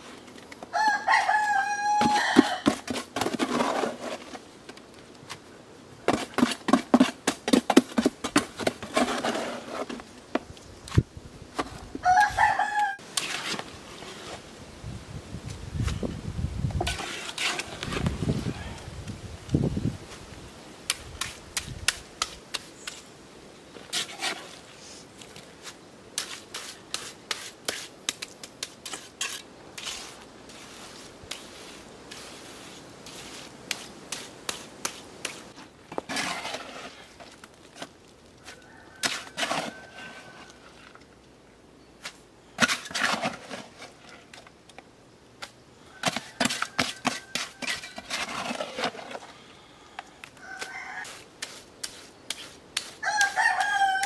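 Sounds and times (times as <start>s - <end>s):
mortar scraping against stone: 2.0s - 4.4s, 6.1s - 10.1s, 13.1s - 14.4s, 16.8s - 18.6s, 23.8s - 40.7s, 42.1s - 44.4s, 46.0s - 49.5s, 50.6s - 53.8s.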